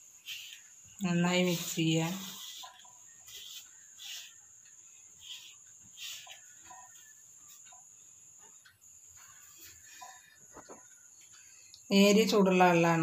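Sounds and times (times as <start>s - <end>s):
fingers stirring flour in a bowl: 0.0s - 8.6s.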